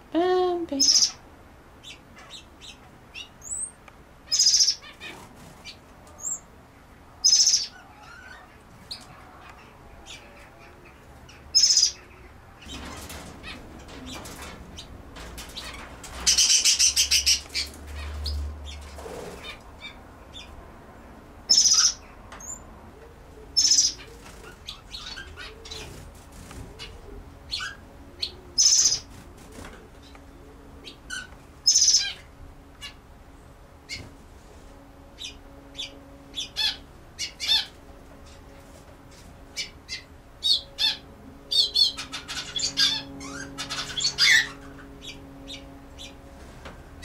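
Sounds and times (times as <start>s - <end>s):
bird twittering: 1.8s - 6.4s, 7.2s - 10.2s, 11.4s - 12.0s, 30.8s - 32.2s, 39.5s - 46.3s.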